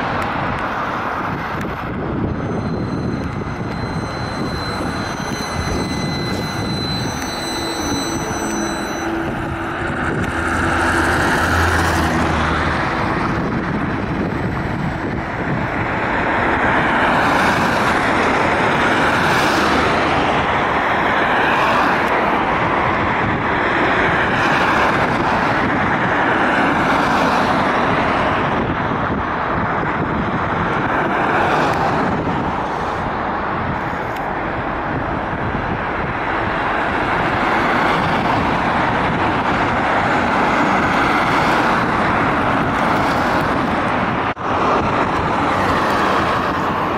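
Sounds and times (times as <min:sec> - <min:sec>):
trolleybus driving away: 0:00.0 - 0:46.9
tyres hissing on road: 0:31.1 - 0:46.9.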